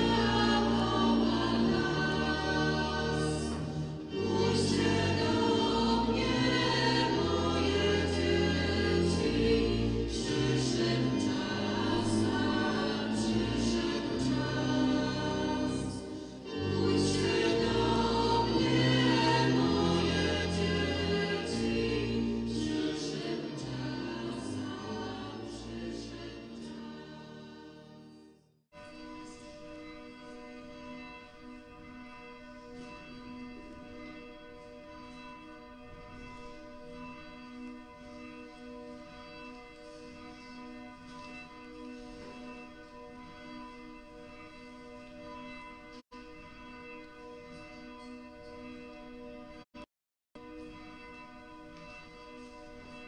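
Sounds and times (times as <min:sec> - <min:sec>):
choir singing a hymn: 0:00.0 - 0:27.9.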